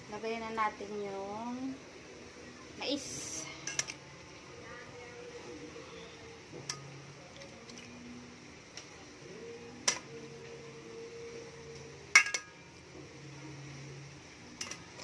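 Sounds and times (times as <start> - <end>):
metal tongs clinking on pot: 12.1 - 12.6.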